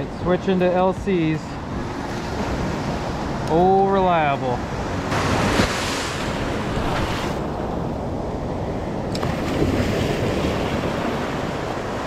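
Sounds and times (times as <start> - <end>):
ocean surf breaking: 0.4 - 12.0
wind buffeting microphone: 4.6 - 12.0.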